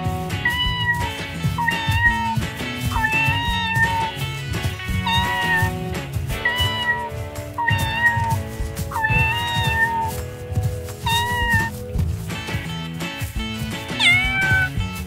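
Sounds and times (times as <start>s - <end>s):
background music: 0.0s - 15.0s
kitten meowing: 0.4s - 10.2s, 11.0s - 11.8s, 13.9s - 14.9s.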